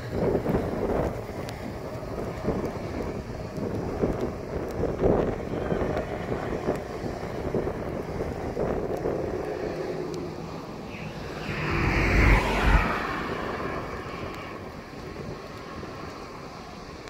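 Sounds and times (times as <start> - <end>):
wind buffeting microphone: 0.0 - 17.0
deep rumble: 8.7 - 15.5.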